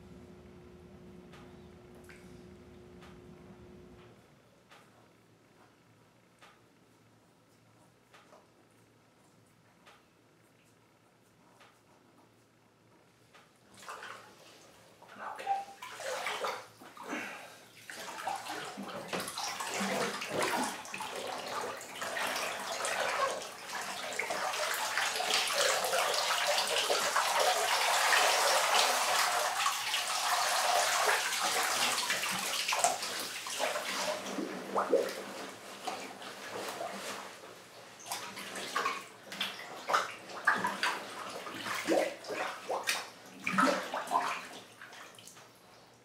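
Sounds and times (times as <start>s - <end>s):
bathwater sloshing and splashing: 13.7s - 45.8s.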